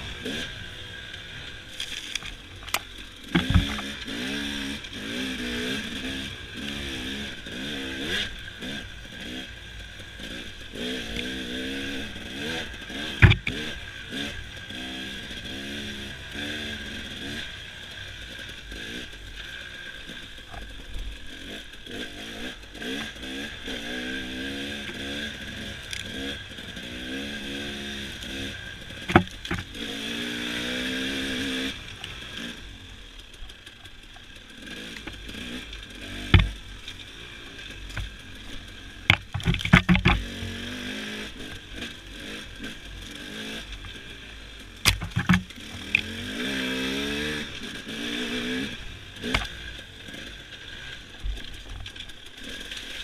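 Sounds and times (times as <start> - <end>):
dirt bike engine revving: 0.0 - 53.0
sharp knocks: 3.3 - 3.9, 13.2 - 13.6, 36.3 - 36.6, 44.8 - 45.5.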